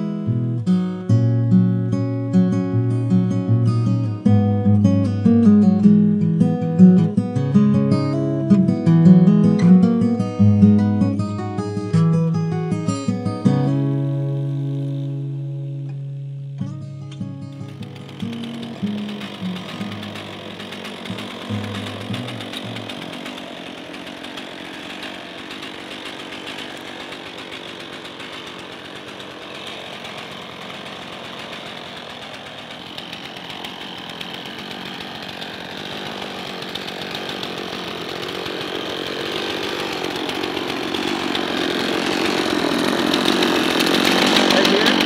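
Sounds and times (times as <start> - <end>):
chainsaw engine idling: 12.5 - 15.8, 17.3 - 45.0.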